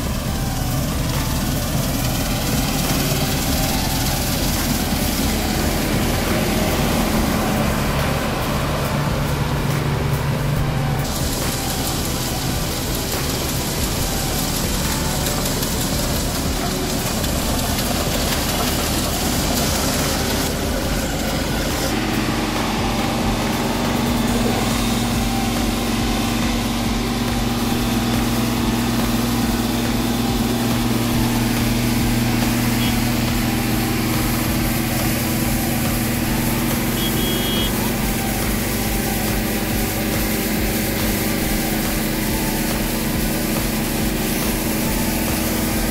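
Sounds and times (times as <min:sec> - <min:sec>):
combine harvester running: 0:00.0 - 0:45.9
unloading auger humming: 0:00.0 - 0:45.9.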